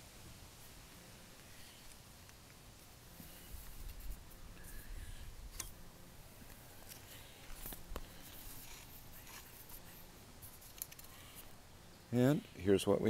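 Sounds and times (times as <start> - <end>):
camera handling rumble: 6.4 - 9.9, 10.5 - 11.5.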